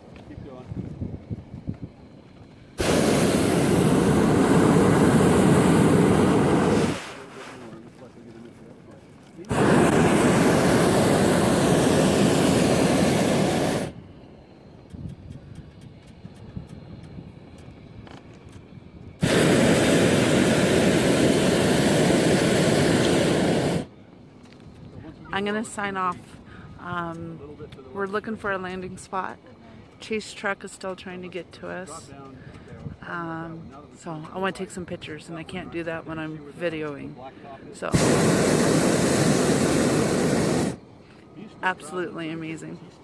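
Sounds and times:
propane burner blast: 0.4 - 24.0, 34.4 - 40.9.

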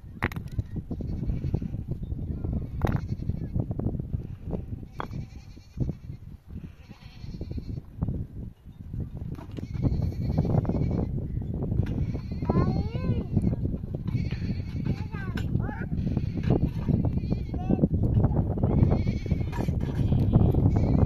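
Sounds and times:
livestock bleating: 1.0 - 3.6, 4.4 - 7.8, 9.6 - 11.2, 11.9 - 15.2, 18.6 - 21.0.

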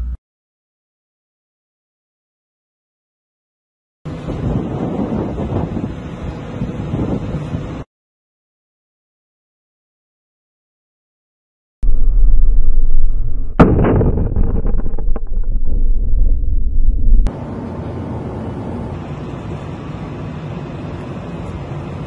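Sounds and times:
rushing wind and water: 4.1 - 7.8
crackling: 11.8 - 17.3
heavy low rumble: 11.8 - 17.3
sharp bang: 11.8 - 17.3.

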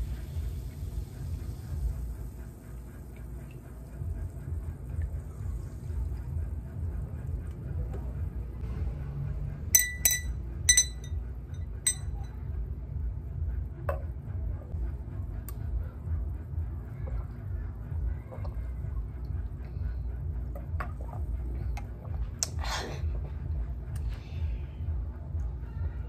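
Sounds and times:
glass straw clinking on glass: 9.8 - 11.2, 11.9 - 12.2.

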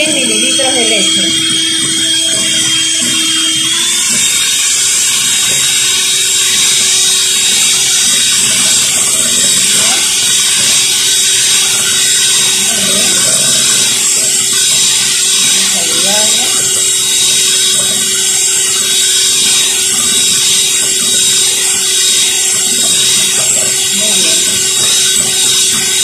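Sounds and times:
electric hand mixer whirring: 0.0 - 26.0.

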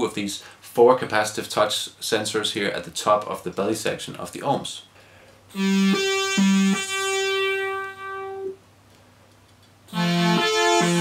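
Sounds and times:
synthesizer notes: 5.5 - 8.6, 9.9 - 11.0.

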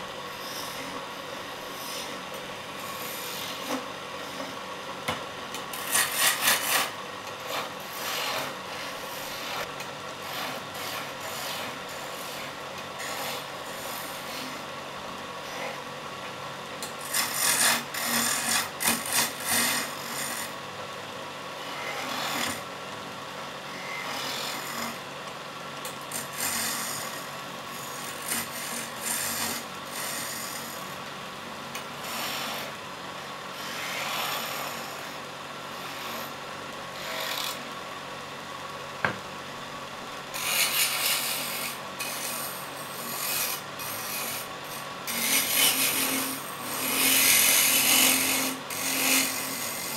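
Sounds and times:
wood lathe humming: 0.1 - 4.6, 17.0 - 20.6, 23.7 - 25.0, 26.1 - 31.0, 40.3 - 49.9
chisel scraping wood: 0.4 - 1.0, 1.7 - 2.2, 2.8 - 4.6, 5.7 - 14.6, 16.8 - 20.5, 21.7 - 22.7, 24.0 - 25.0, 26.0 - 30.9, 32.0 - 32.8, 33.6 - 35.2, 40.4 - 49.9.

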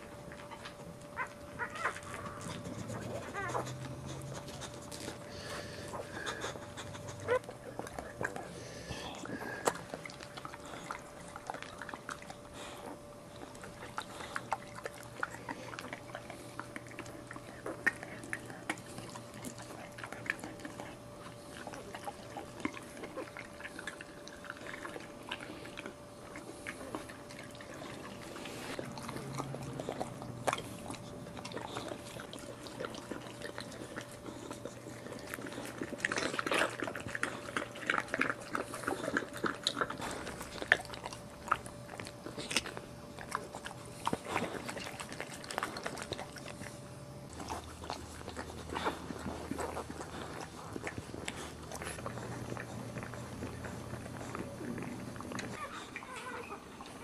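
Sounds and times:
faint steady hum: 0.0 - 57.0
dog licking wetly: 1.9 - 57.0.

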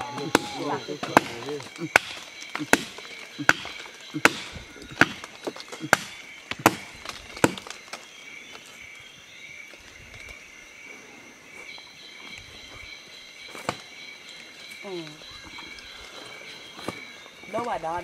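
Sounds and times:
axe chopping tree trunk: 0.0 - 8.0
high-pitched forest chorus: 0.0 - 18.0.

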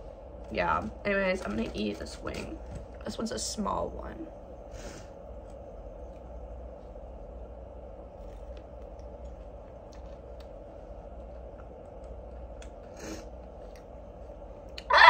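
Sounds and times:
steady background hum: 0.0 - 15.0
person chewing: 8.2 - 10.6, 11.2 - 13.9.

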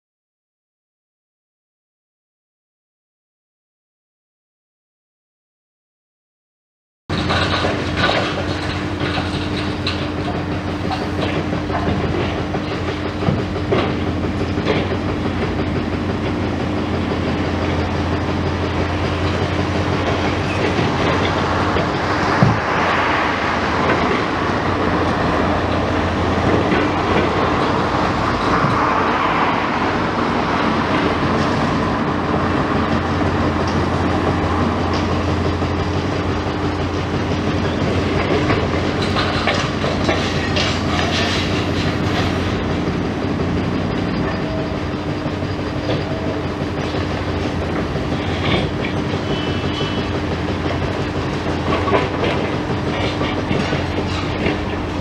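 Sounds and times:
diesel engine running: 7.1 - 55.0.

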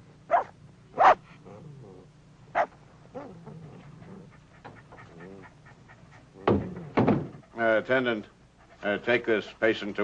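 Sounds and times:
dog yelping: 0.3 - 1.2, 2.5 - 3.4
dog whimpering and whining: 5.0 - 5.6.

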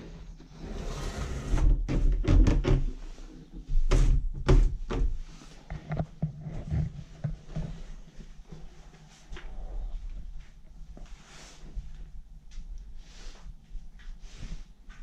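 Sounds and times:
sharp knocks and thuds: 3.9 - 5.2.

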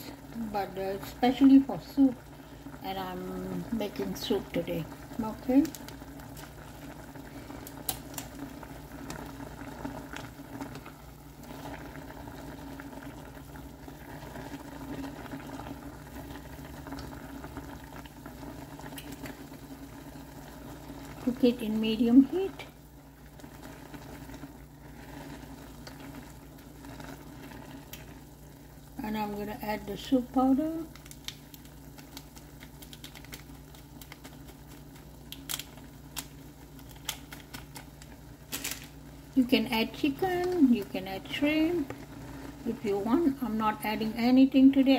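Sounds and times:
noodles simmering: 0.0 - 44.9
water boiling in saucepan: 0.0 - 44.9
foil sachet crinkling and tapping: 5.4 - 6.7, 7.6 - 8.4, 30.8 - 39.0.

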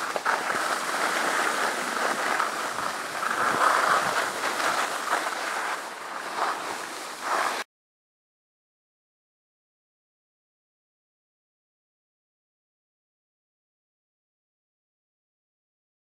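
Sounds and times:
wind on microphone: 0.0 - 7.6
skis scraping on packed snow: 0.0 - 7.7.

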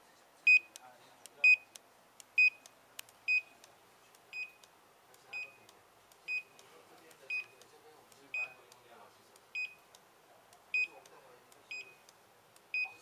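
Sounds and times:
barcode scanner beeps: 0.5 - 0.8, 1.4 - 1.8, 2.4 - 2.7, 3.3 - 3.6, 4.3 - 4.7, 5.3 - 5.7, 6.3 - 6.6, 7.3 - 7.6, 8.3 - 8.7, 9.6 - 9.9, 10.7 - 11.0, 11.7 - 12.1, 12.7 - 13.0.

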